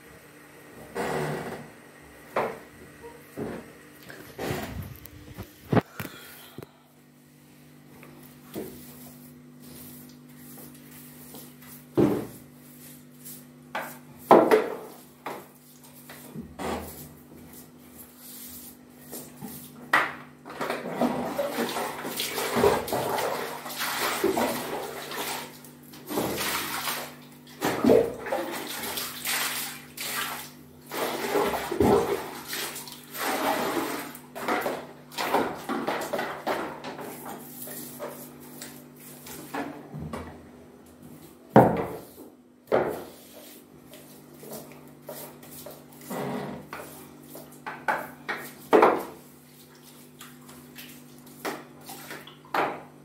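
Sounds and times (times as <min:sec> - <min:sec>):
steady low hum: 0:00.0 - 0:15.0
bucket and brush knocks: 0:11.9 - 0:12.4, 0:13.7 - 0:15.5, 0:41.5 - 0:42.1, 0:42.7 - 0:43.1, 0:47.6 - 0:49.2
water splashing and sloshing: 0:20.5 - 0:39.9, 0:42.9 - 0:52.9
wet cloth scrubbing tiles: 0:28.2 - 0:39.5, 0:43.1 - 0:52.4.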